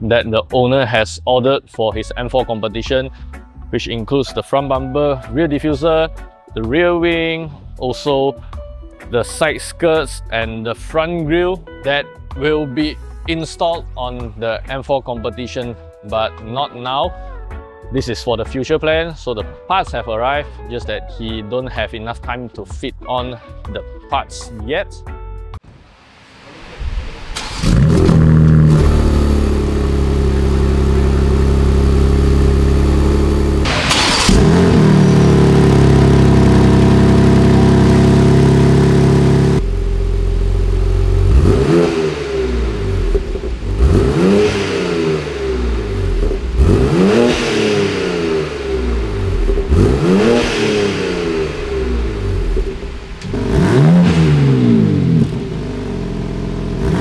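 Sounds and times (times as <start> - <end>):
car engine idling and revving: 26.4 - 57.0.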